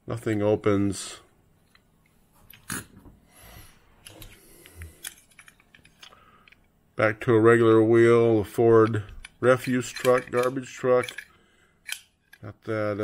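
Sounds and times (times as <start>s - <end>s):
toy cars clicking and knocking: 9.0s - 11.3s.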